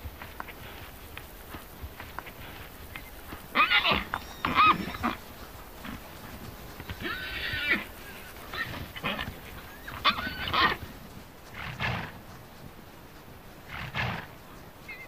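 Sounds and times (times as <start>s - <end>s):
horses whinnying: 2.4s - 12.2s, 13.7s - 15.0s.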